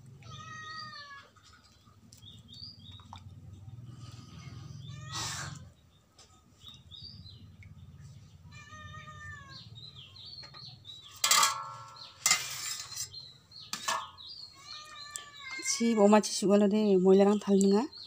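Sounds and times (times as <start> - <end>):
small birds chirping: 0.2 - 18.0
water splashing in a bowl: 2.8 - 3.5.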